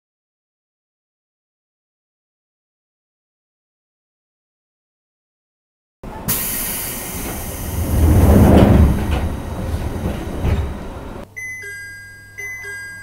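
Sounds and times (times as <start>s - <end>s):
train sliding doors closing: 6.0s - 11.2s.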